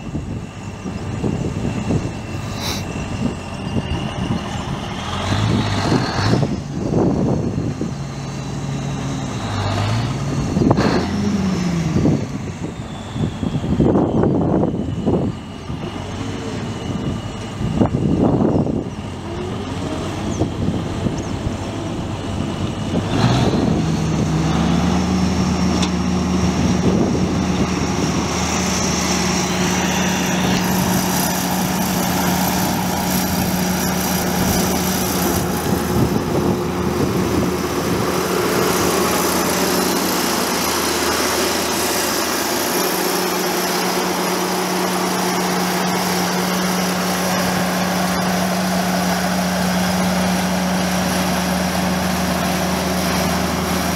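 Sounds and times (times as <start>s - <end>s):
tractor diesel engine running: 0.0s - 53.9s.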